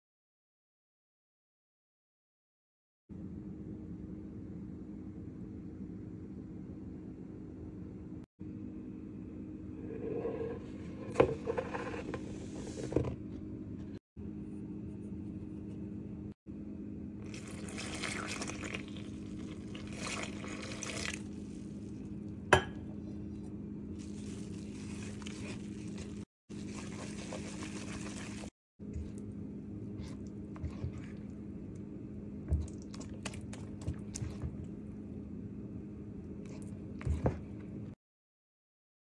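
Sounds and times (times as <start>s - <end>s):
steady low hum: 3.1s - 38.0s
water pouring and splashing: 17.2s - 21.6s, 24.0s - 28.5s
whisk mixing flour in bowl: 24.0s - 31.3s
spatula stirring thick batter: 24.0s - 31.5s.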